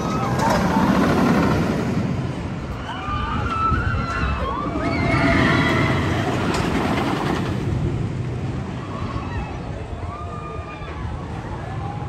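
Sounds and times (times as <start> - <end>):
roller coaster rumbling on track: 0.0 - 12.0.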